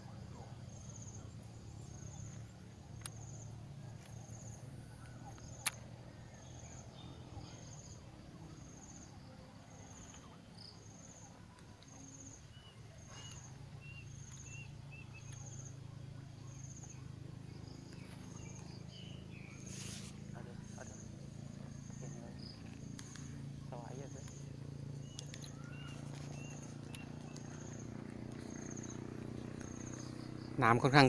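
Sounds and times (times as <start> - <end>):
insect chirping: 0.0 - 31.0
sharp click: 5.4 - 5.8.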